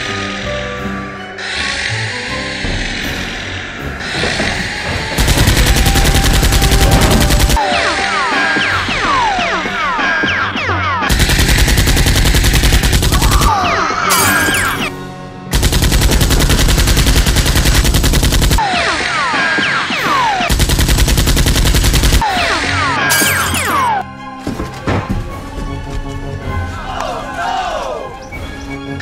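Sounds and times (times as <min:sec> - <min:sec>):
background music: 0:00.0 - 0:29.0
machine-gun fire: 0:04.0 - 0:07.7, 0:11.1 - 0:14.9, 0:15.5 - 0:19.2, 0:19.9 - 0:23.9.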